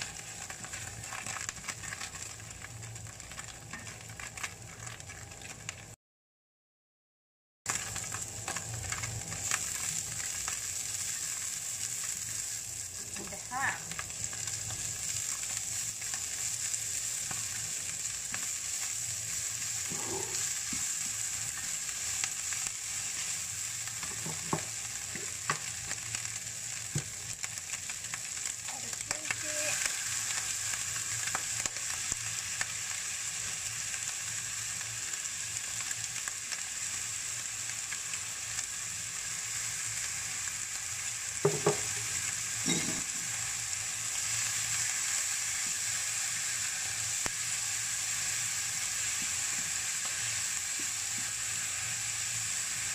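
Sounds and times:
food sizzling in a frying pan: 0:00.0 - 0:06.0, 0:07.7 - 0:52.9
spatula tapping a pan: 0:41.4 - 0:41.9.

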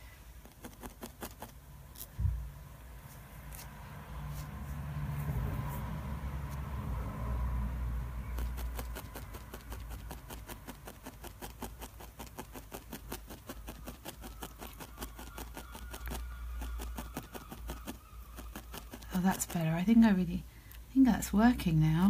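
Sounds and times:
felting needle jabbing wool: 0:00.0 - 0:04.7, 0:08.1 - 0:22.0
low steady hum: 0:00.0 - 0:22.0.

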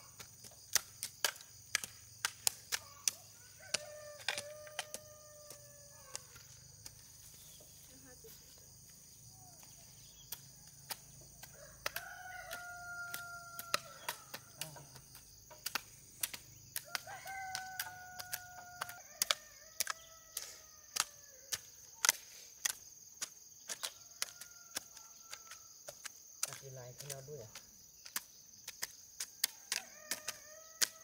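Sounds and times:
insects trilling: 0:00.0 - 0:31.0
roosters crowing: 0:02.8 - 0:06.9, 0:11.4 - 0:15.6, 0:16.8 - 0:21.5, 0:29.5 - 0:31.0.

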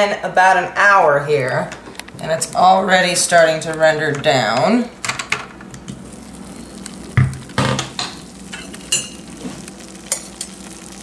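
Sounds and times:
fat sizzling: 0:04.4 - 0:11.0.

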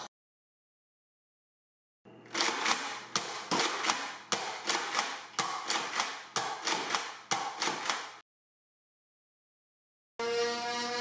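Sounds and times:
toy blaster firing plastic clacks: 0:02.4 - 0:08.1.

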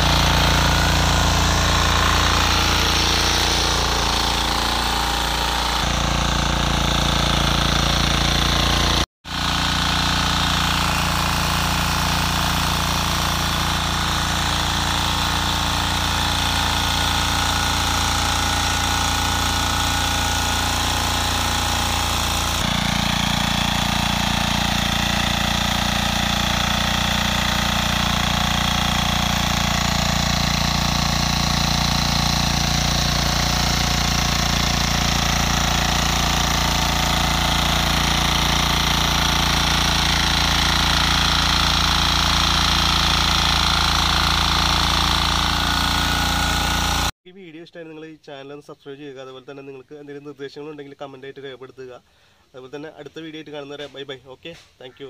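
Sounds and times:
tines churning soil: 0:00.0 - 0:47.1
tiller engine running: 0:00.0 - 0:47.2.

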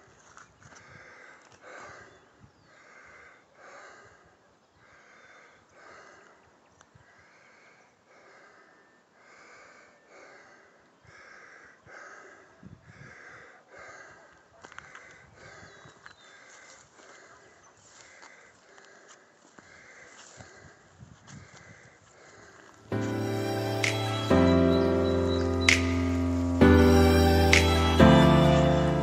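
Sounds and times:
person breathing hard: 0:00.8 - 0:06.4, 0:07.1 - 0:14.3, 0:15.0 - 0:15.8, 0:18.0 - 0:20.9, 0:21.5 - 0:23.9.

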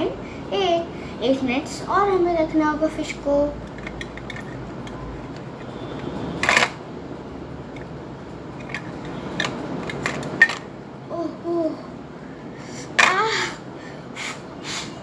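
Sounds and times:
plastic toys clattering: 0:03.6 - 0:05.7, 0:06.4 - 0:06.8, 0:08.5 - 0:10.7.

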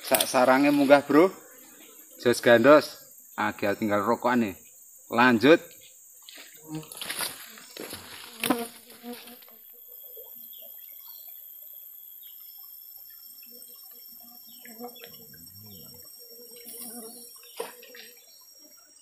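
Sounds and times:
insects droning: 0:00.0 - 0:19.0
faint chirps: 0:09.6 - 0:19.0.

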